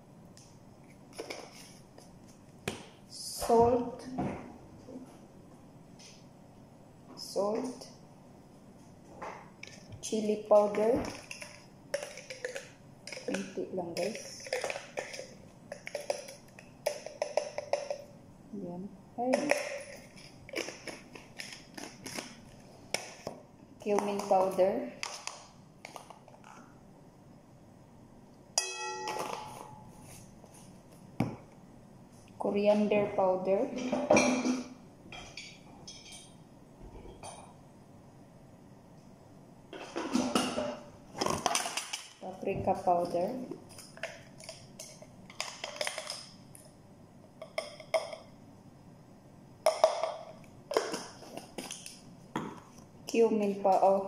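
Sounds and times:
clink against glass bowl ringing: 28.6s - 29.9s.

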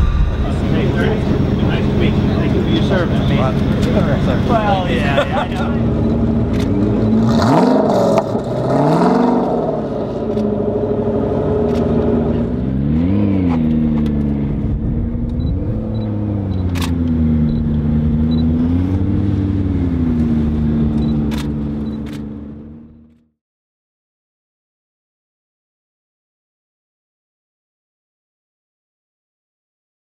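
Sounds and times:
car engine running: 0.0s - 23.3s.

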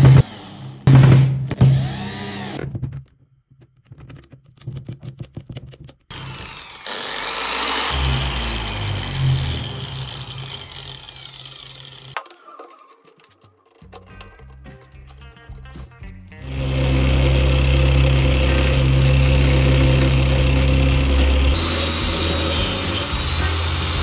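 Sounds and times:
cordless drill driving screw: 1.6s - 2.6s, 6.1s - 12.2s, 16.5s - 24.0s
angle grinder running: 6.1s - 12.2s, 16.4s - 24.0s
light clicks and rattles: 12.2s - 15.8s.

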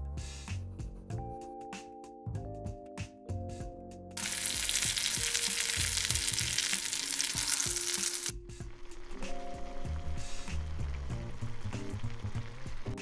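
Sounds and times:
background music: 0.0s - 13.0s
steak sizzling in a frying pan: 4.2s - 8.3s.

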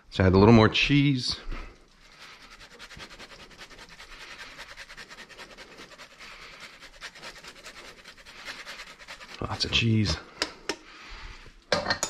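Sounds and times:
cheese grater rasping: 1.8s - 10.2s.

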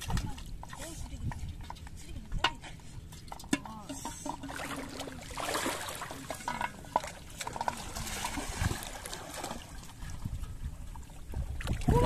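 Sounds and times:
shallow water splashing: 3.9s - 12.0s.

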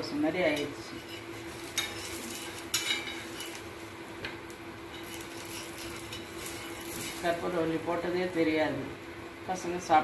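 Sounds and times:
steady low hum: 0.0s - 10.0s
metal spatula scraping a griddle: 0.5s - 3.8s, 4.9s - 7.6s.

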